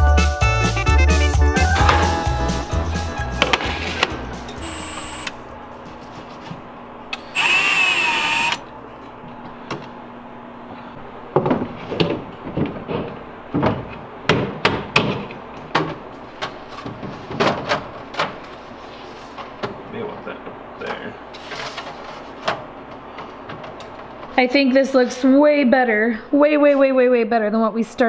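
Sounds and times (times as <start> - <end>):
knocks and clunks of storage unit: 1.7 - 2.4, 11.3 - 18.4
cordless drill running: 4.6 - 5.3, 7.2 - 8.7.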